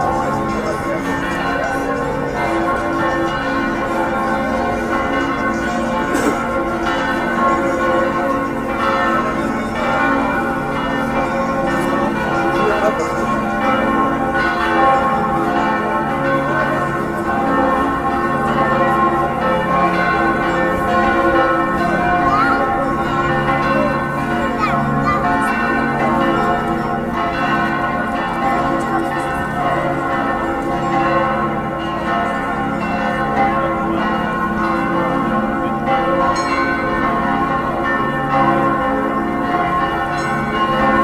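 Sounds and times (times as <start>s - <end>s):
church bells pealing: 0.0s - 41.0s.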